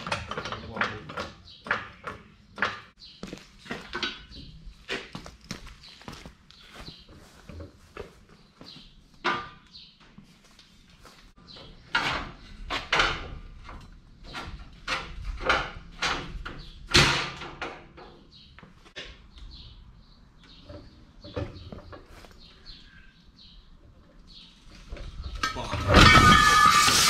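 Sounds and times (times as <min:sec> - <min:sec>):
metal clunks and knocks: 0:00.0 - 0:03.0, 0:09.2 - 0:09.7, 0:11.6 - 0:18.3.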